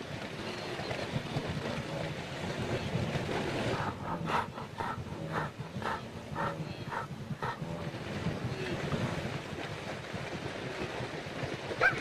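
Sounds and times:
herd grunting: 0:01.6 - 0:09.3.

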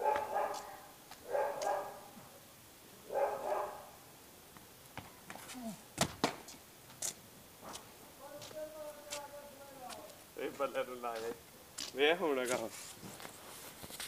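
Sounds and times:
dog barking: 0:00.0 - 0:02.2, 0:03.1 - 0:04.0.

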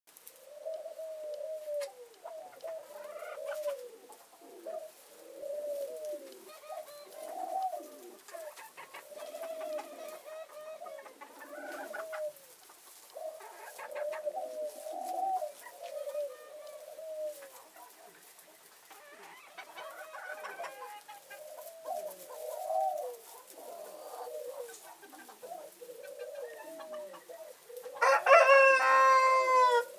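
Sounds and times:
chickens clucking: 0:00.2 - 0:29.9
rooster crowing: 0:28.0 - 0:29.9.

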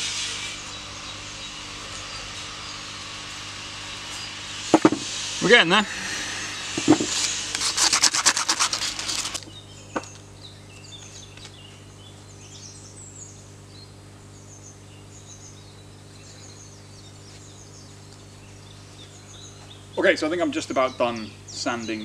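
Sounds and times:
low steady hum: 0:00.0 - 0:22.0
sandpaper on steel: 0:06.8 - 0:09.4.

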